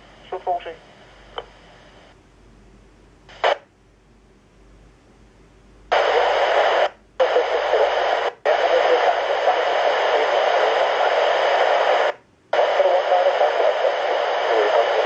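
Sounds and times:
radio static hiss bursts: 0:00.0 - 0:02.2, 0:03.3 - 0:03.7, 0:05.9 - 0:15.0.

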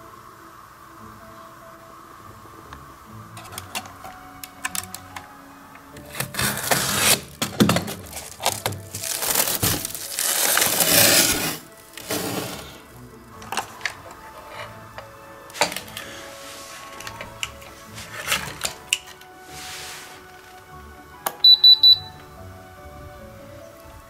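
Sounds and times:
background music: 0:00.0 - 0:24.0
plastic wrap crinkling: 0:03.4 - 0:05.3, 0:05.9 - 0:14.3.

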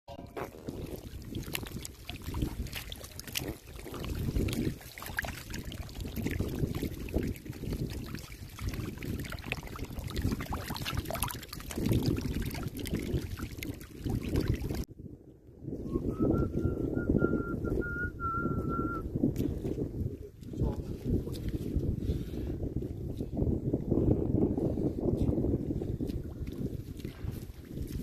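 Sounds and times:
fish splashing in shallow water: 0:00.1 - 0:14.9.

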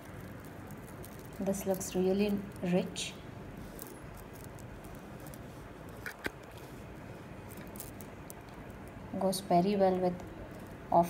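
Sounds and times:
necklace clicking: 0:00.0 - 0:06.8, 0:07.4 - 0:09.0
faint room hiss: 0:00.0 - 0:11.0.

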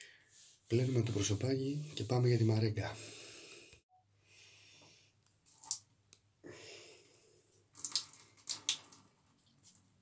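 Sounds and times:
water splashes and drips: 0:05.4 - 0:05.9, 0:07.7 - 0:10.0.

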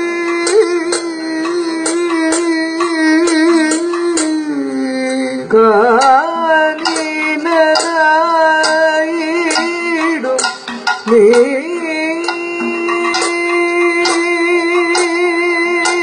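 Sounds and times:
percussion strikes: 0:00.0 - 0:16.0
singers holding wavering vowel: 0:00.0 - 0:16.0.

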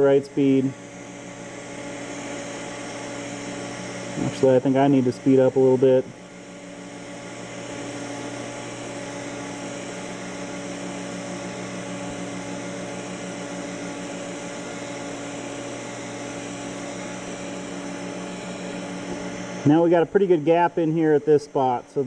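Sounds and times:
welding arc hissing: 0:00.0 - 0:06.1
welder and motor humming: 0:00.0 - 0:22.0.

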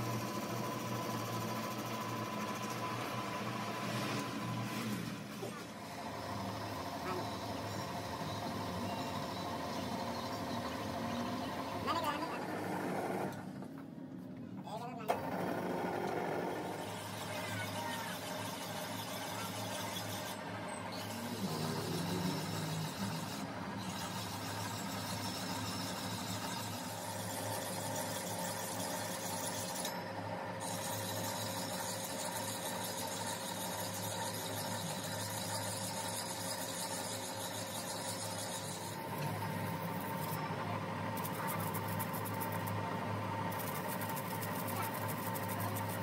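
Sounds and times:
thin steady whine: 0:05.5 - 0:12.4, 0:16.6 - 0:46.0
file rubbing on steel: 0:18.0 - 0:26.8, 0:30.6 - 0:40.4, 0:41.2 - 0:42.8, 0:43.5 - 0:46.0
lathe motor hum: 0:18.1 - 0:46.0.

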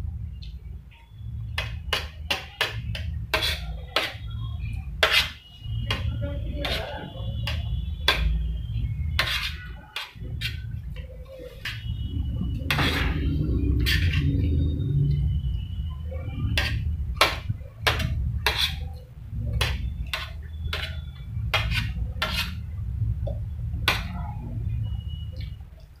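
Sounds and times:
steady low rumble: 0:21.2 - 0:25.1.

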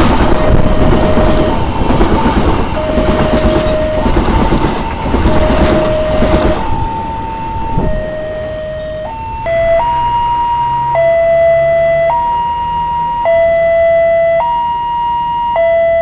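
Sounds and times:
train wheels clattering on rails: 0:00.0 - 0:08.0
level crossing alarm two tones: 0:00.3 - 0:01.6, 0:02.8 - 0:16.0.

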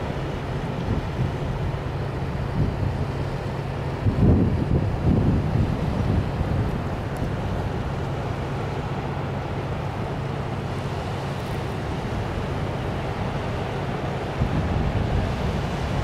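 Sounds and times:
ship engine drone: 0:00.0 - 0:16.0
wind noise on microphone: 0:00.7 - 0:01.8, 0:02.4 - 0:03.2, 0:04.0 - 0:07.9, 0:14.3 - 0:16.0.

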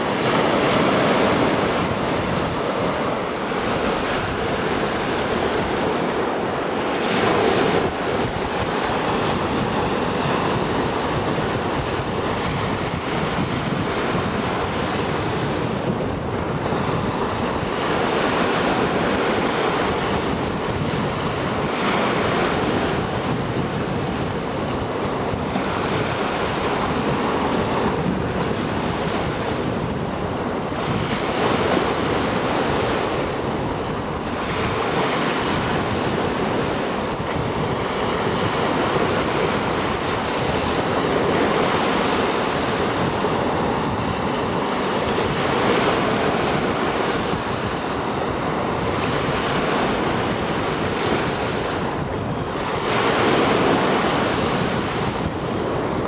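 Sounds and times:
lake waves washing over stones: 0:00.0 - 0:56.0.

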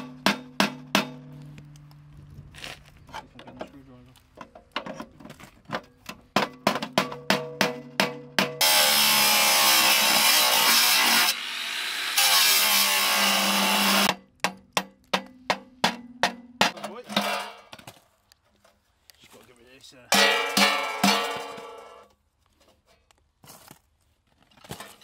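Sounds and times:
angle grinder cutting steel: 0:08.6 - 0:14.1.

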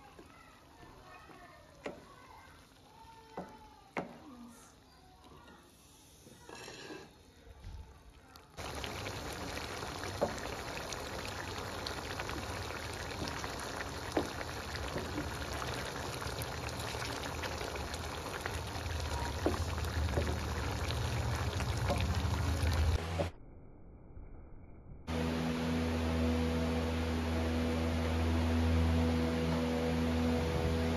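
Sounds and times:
curry bubbling in a metal pan: 0:08.4 - 0:23.0.

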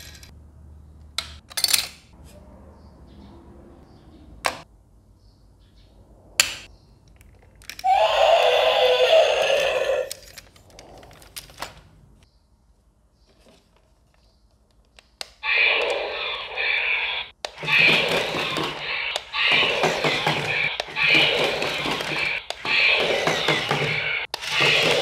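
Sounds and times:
loud noisy sound: 0:15.4 - 0:25.0.

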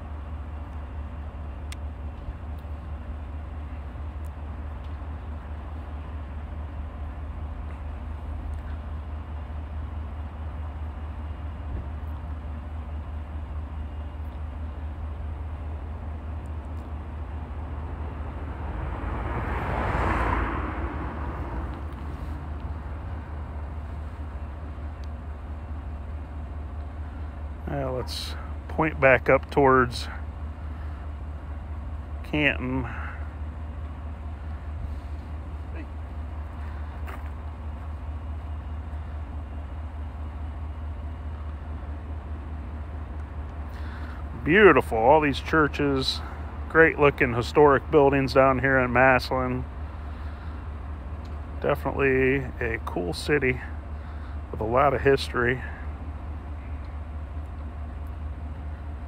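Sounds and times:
steady low rumble: 0:00.0 - 0:59.0
vehicle passing close by: 0:17.5 - 0:24.0.

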